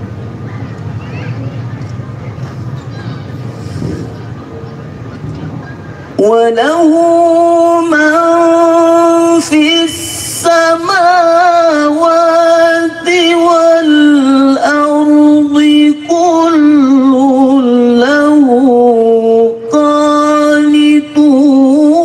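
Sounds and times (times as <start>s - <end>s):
man chanting into a microphone: 6.2s - 22.0s.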